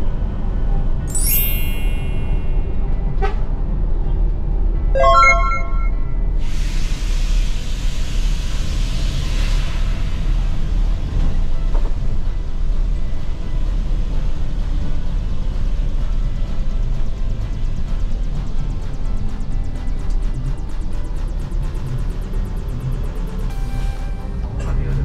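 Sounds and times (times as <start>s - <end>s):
rushing hiss of air or tyres: 6.5s - 10.6s.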